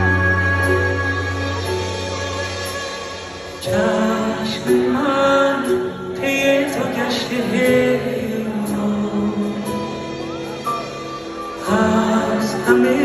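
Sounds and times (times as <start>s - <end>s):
live band playing slow pop song: 0.0s - 13.0s
man singing: 3.5s - 13.0s.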